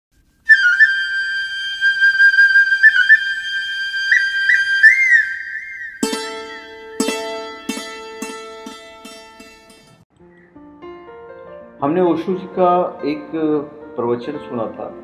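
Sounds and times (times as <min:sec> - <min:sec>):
flute holding high note: 0:00.5 - 0:06.9
plucked string instrument ringing: 0:06.0 - 0:10.0.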